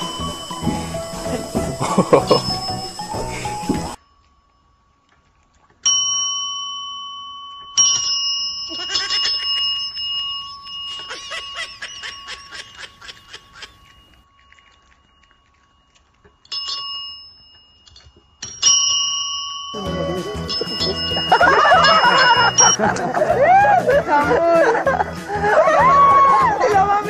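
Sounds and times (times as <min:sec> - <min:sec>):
desk service bell dinging: 0:00.0 - 0:04.0, 0:18.4 - 0:22.8.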